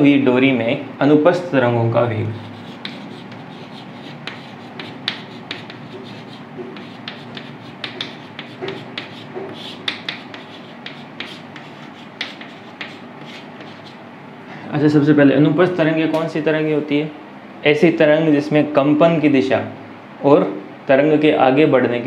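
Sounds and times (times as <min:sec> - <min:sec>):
chalk writing on a blackboard: 0:02.4 - 0:14.0.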